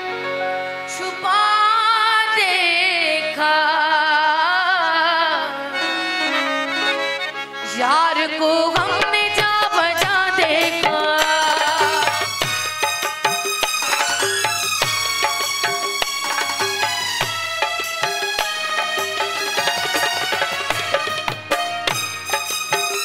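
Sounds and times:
harmonium: 0.0s - 23.0s
woman singing with vibrato: 0.9s - 6.5s, 7.6s - 12.4s
tabla strokes: 8.7s - 23.0s.

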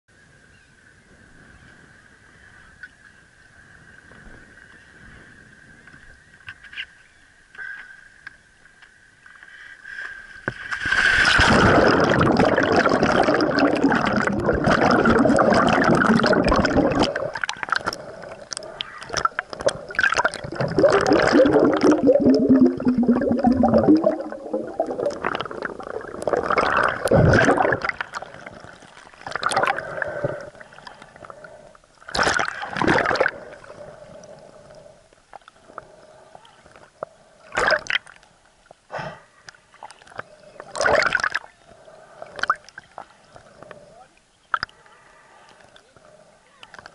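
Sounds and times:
underwater gurgling and rushing: 10.4s - 38.2s, 39.7s - 43.9s.

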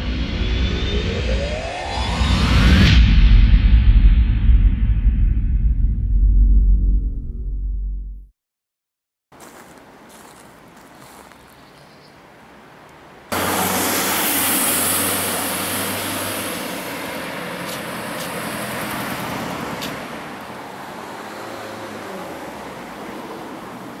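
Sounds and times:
street traffic hiss: 9.4s - 24.0s
minibus passing close by: 13.3s - 24.0s.

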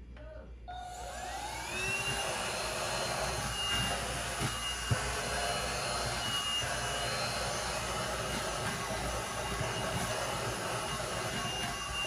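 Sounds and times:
handheld vacuum motor whine: 0.7s - 12.0s.

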